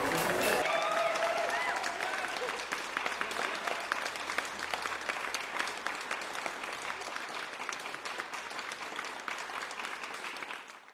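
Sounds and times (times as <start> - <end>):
people applauding: 0.0 - 10.9.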